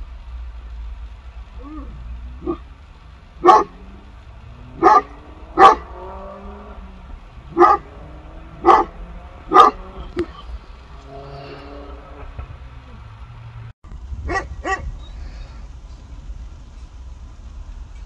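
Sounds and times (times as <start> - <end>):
dog barking: 2.4 - 2.7, 3.4 - 3.8, 4.7 - 6.0, 7.5 - 8.0, 8.6 - 9.9, 14.3 - 14.9.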